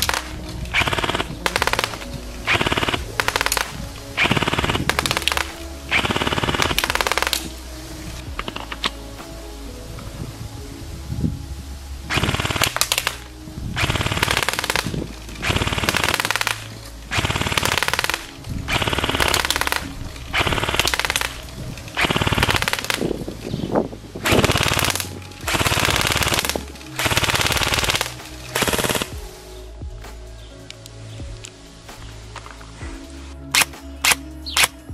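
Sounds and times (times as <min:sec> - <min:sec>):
airsoft gun firing bursts: 0:00.0 - 0:07.5, 0:13.8 - 0:21.4, 0:22.0 - 0:23.1, 0:24.3 - 0:29.2.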